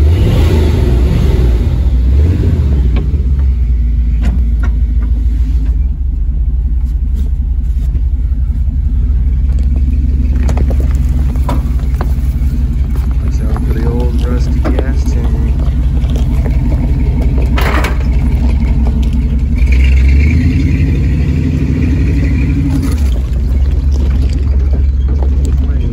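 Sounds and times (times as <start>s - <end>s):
van engine rumbling: 0.0s - 25.9s
van rattling and knocking: 2.8s - 5.8s, 7.5s - 20.5s, 22.2s - 25.9s.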